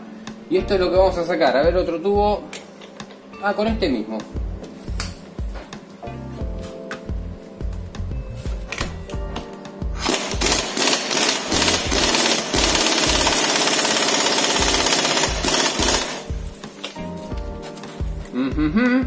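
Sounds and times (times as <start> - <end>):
music with steady beat: 0.0 - 19.0
impact wrench hammering: 10.0 - 16.4.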